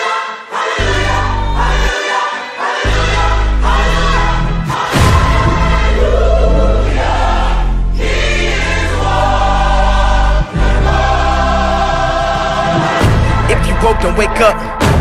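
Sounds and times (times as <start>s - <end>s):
gospel choir singing: 0.0s - 15.0s
deep steady bass: 3.0s - 11.6s.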